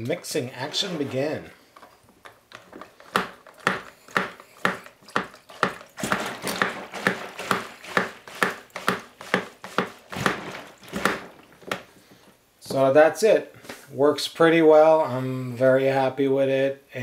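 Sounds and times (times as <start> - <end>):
plunger mixer swishing water: 0.3 - 12.2.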